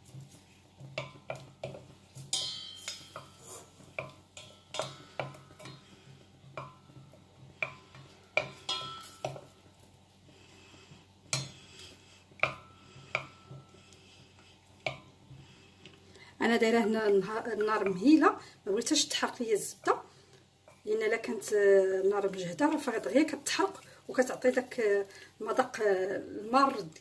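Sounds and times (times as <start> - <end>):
wooden spatula scraping saucepan: 0.0 - 18.3.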